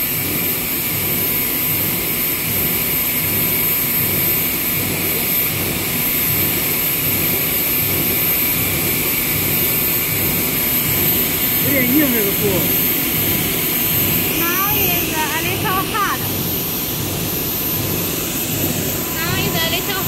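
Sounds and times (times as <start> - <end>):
thin high whine: 10.1 - 20.0.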